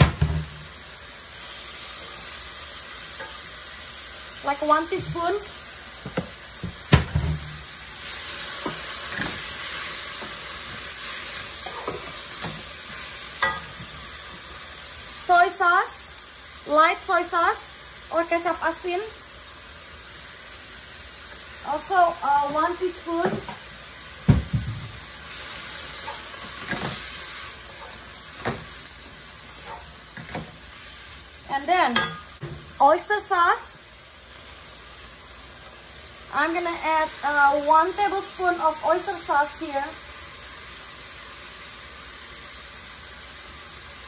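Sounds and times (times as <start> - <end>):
vegetables sizzling in a wok: 0.0 - 44.0
wooden spatula knocking on pan: 6.0 - 7.6, 24.2 - 25.0
spatula scraping and tapping pan: 11.5 - 14.0, 25.6 - 28.8, 29.6 - 30.7.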